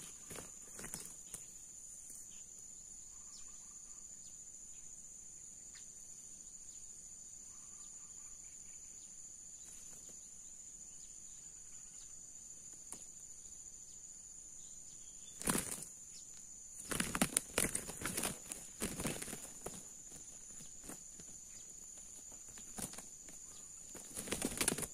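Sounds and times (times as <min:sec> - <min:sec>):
roosters fighting wing beats: 0:00.0 - 0:01.6, 0:09.7 - 0:10.2, 0:15.3 - 0:15.9, 0:16.8 - 0:24.9
high insect drone: 0:00.0 - 0:24.9.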